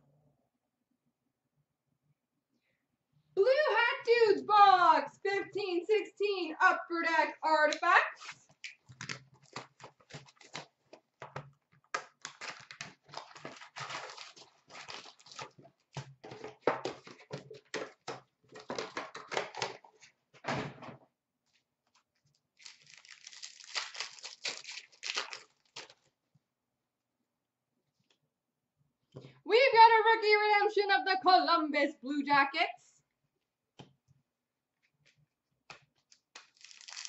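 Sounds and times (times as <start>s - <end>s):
cardboard and wrappers rustling: 8.3s - 20.2s, 22.0s - 26.1s, 36.0s - 37.0s
foil wrapper tearing: 12.2s - 15.6s, 22.6s - 26.1s, 36.3s - 37.0s.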